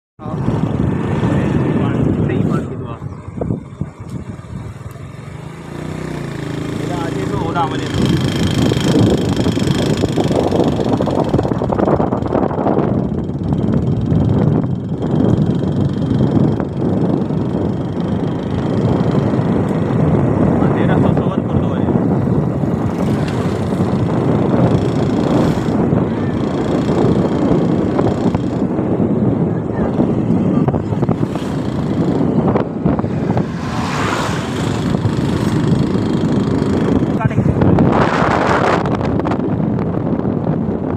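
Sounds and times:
motorcycle engine running: 0:00.2 - 0:40.9
wind on microphone: 0:00.2 - 0:40.9
truck passing close: 0:30.6 - 0:37.2.

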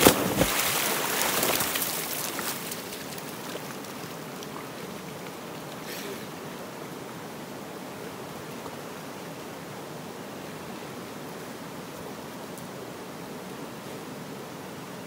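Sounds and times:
water splashing: 0:00.0 - 0:05.8
running creek water: 0:00.0 - 0:15.0.

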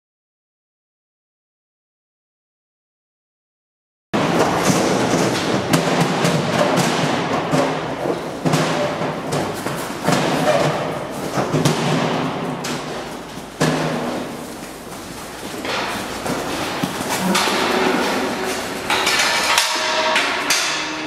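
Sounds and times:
hooves clattering on metal floor: 0:04.2 - 0:21.0
steady low hum: 0:04.2 - 0:21.0
steel gates knocking: 0:15.6 - 0:21.0.

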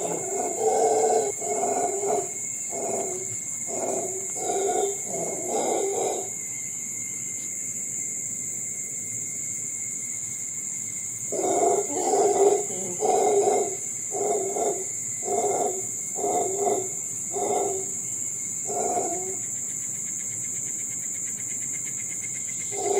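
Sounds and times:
howler monkeys calling: 0:00.0 - 0:06.4, 0:11.2 - 0:19.5, 0:22.6 - 0:22.9
steady high hiss: 0:00.0 - 0:22.9.

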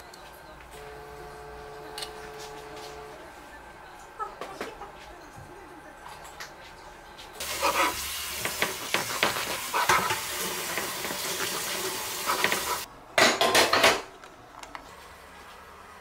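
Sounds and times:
bread knife sawing crusty bread: 0:07.4 - 0:08.0.

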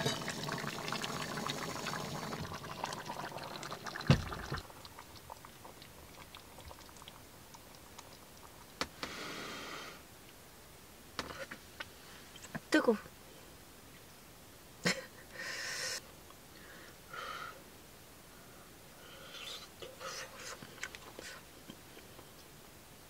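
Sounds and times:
stew bubbling in a pot: 0:00.0 - 0:09.0
soft hiss: 0:03.5 - 0:23.0.

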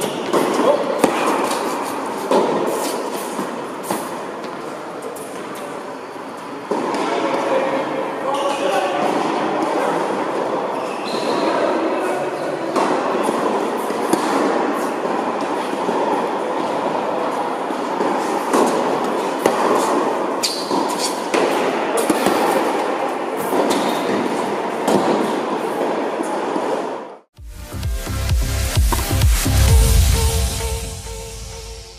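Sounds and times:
tennis balls struck and bouncing: 0:00.0 - 0:05.6, 0:06.7 - 0:07.5, 0:12.7 - 0:26.8
steady loud rushing noise: 0:28.4 - 0:31.9.

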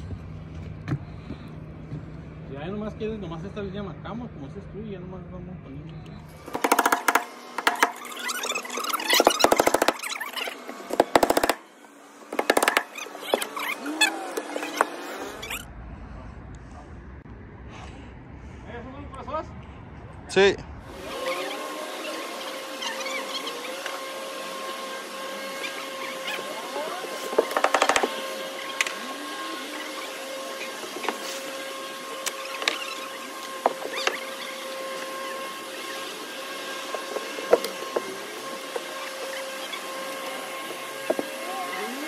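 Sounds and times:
pneumatic nailer shots: 0:06.3 - 0:15.6, 0:20.9 - 0:41.4.

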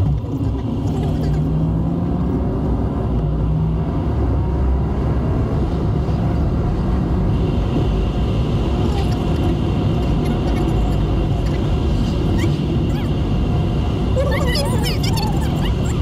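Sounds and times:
car engine and tyre rumble: 0:00.0 - 0:16.0.

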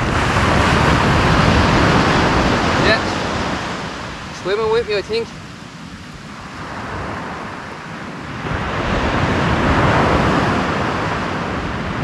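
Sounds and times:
surf breaking on beach: 0:00.0 - 0:12.0.

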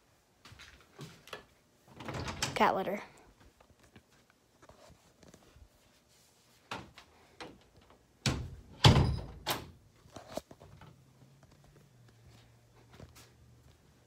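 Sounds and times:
knocks and thuds of door latch: 0:08.2 - 0:09.8.

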